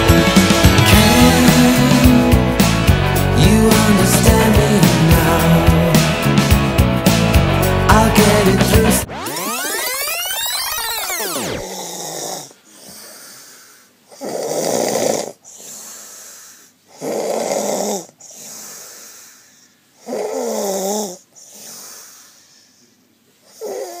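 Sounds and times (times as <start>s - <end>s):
person snoring: 0.0s - 9.2s, 11.6s - 22.8s, 23.5s - 24.0s
music with sliding tones: 0.0s - 11.6s
quiet breaths: 11.7s - 14.4s, 15.3s - 24.0s.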